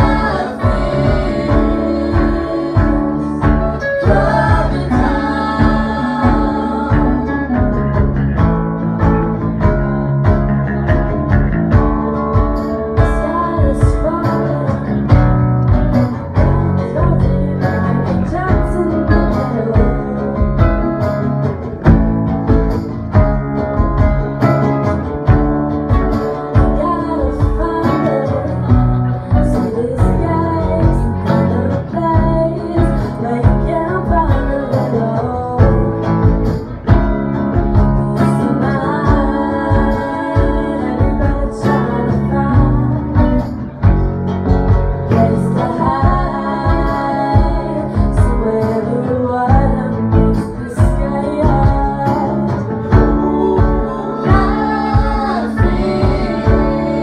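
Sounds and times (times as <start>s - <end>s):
person singing: 0.0s - 8.1s, 26.3s - 43.9s, 45.0s - 57.0s
rock band guitar and drums: 0.0s - 57.0s.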